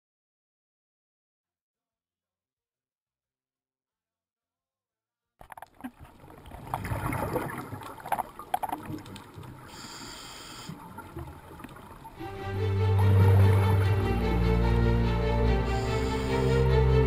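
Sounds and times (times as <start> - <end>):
underwater gurgling and bubbling: 5.4 - 12.2
music: 12.2 - 17.0
short high whine: 15.4 - 17.0.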